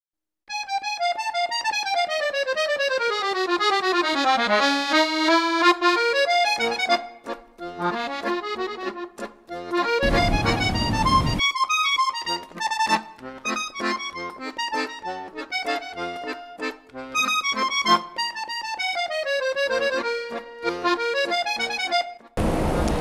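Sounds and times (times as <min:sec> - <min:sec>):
accordion musette music: 0:00.5 - 0:23.0
burst of rushing noise: 0:10.0 - 0:11.4.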